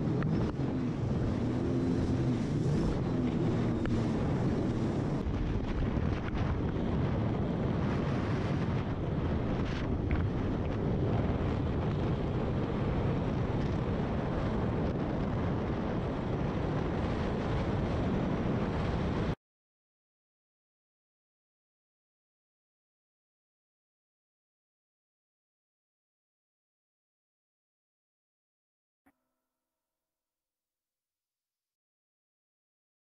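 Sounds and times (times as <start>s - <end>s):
wind buffeting microphone: 0.0s - 19.4s
watercraft engine running: 0.2s - 8.6s.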